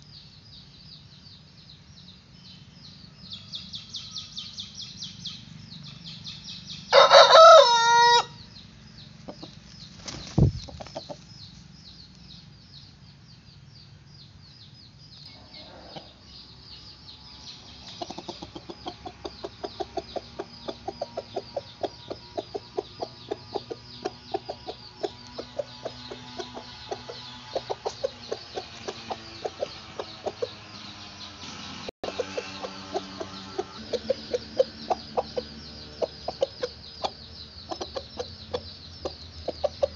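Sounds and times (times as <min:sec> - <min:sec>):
faint high chirping: 0:00.0 - 0:39.9
rooster crowing: 0:06.9 - 0:08.4.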